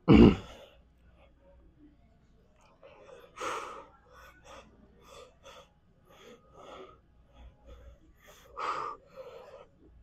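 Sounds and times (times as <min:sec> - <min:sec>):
person breathing quickly: 0:02.9 - 0:10.0.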